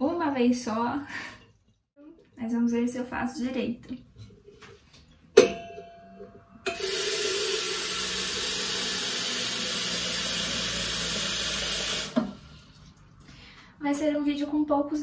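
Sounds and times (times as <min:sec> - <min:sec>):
tap water running into kettle: 0:06.7 - 0:13.1.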